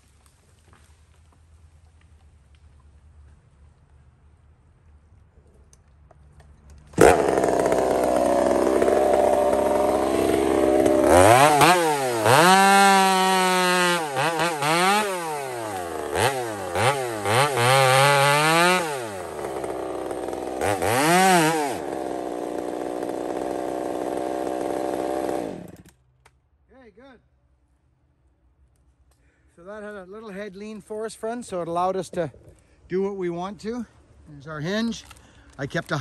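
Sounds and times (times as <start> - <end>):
chainsaw revving and cutting: 6.9 - 26.0.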